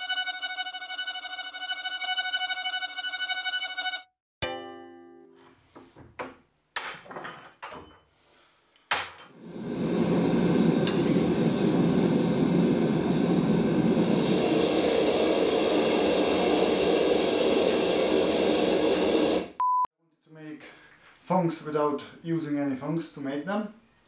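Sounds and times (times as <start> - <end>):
gas burner roaring: 9.4 - 19.6.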